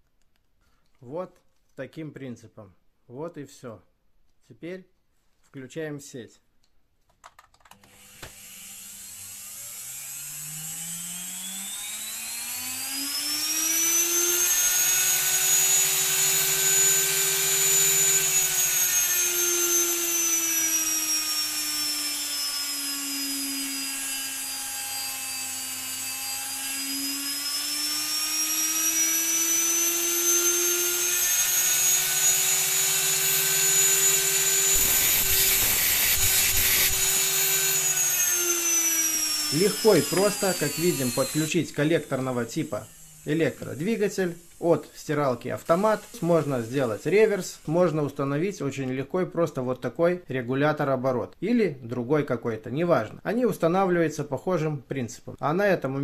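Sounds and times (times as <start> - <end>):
electric motor whining: 7.8 - 44.7.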